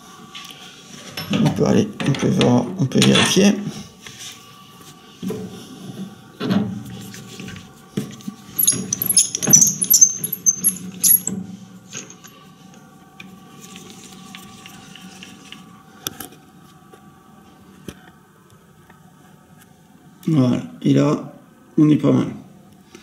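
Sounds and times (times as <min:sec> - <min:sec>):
metal lathe tooling clinks and rattles: 0:08.6 - 0:11.4, 0:12.0 - 0:12.4.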